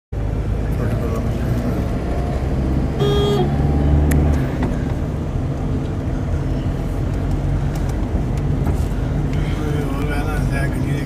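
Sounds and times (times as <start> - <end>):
car engine and road rumble: 0.1 - 11.0
car horn toot: 2.9 - 3.6.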